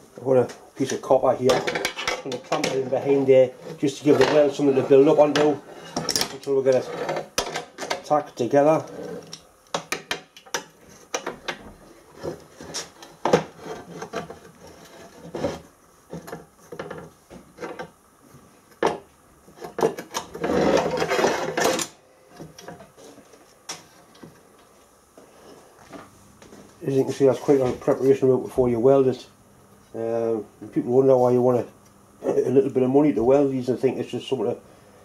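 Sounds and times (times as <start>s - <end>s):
metal scraping and rattling: 19.6s - 21.9s.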